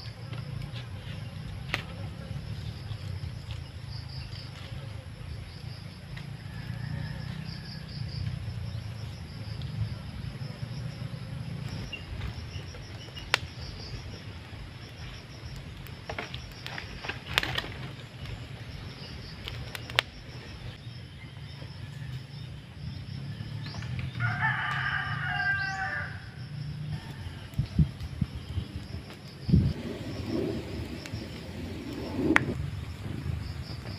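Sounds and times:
insects buzzing: 0:00.0 - 0:33.9
rooster crowing: 0:06.2 - 0:08.4, 0:23.2 - 0:28.0.

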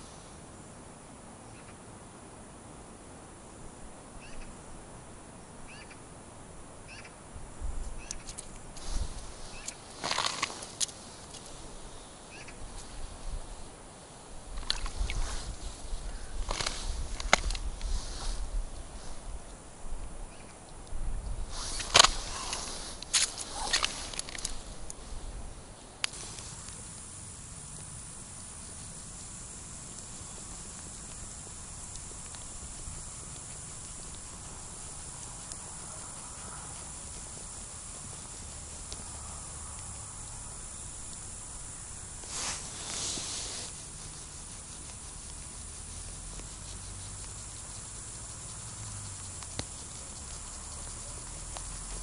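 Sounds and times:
hiss: 0:00.0 - 0:00.5, 0:08.0 - 0:19.8, 0:21.4 - 0:52.0
fishing rod ticking and rustle: 0:08.0 - 0:11.6, 0:21.7 - 0:25.0
low steady rumble: 0:10.5 - 0:52.0.

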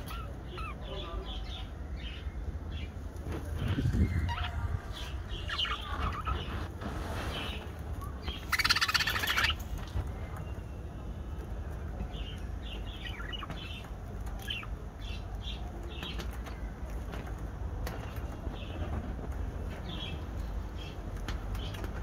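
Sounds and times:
budgerigars chirping: 0:03.6 - 0:06.7, 0:08.2 - 0:10.0, 0:12.2 - 0:15.3.

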